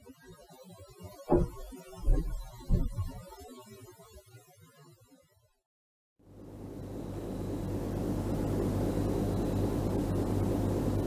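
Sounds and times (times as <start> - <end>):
low hum and hiss: 6.3 - 11.0.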